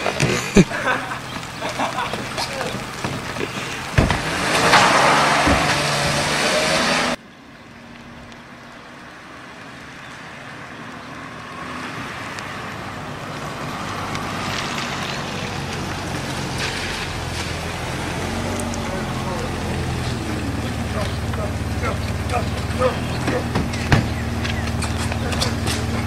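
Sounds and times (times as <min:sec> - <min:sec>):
tyres hissing on wet road: 0:00.0 - 0:07.2, 0:09.2 - 0:23.5
car engine running: 0:15.4 - 0:26.0.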